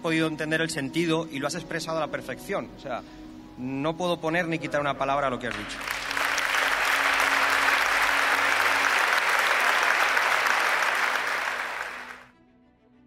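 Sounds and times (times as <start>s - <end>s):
faint background music: 0.0s - 13.0s
audience clapping: 5.5s - 12.3s.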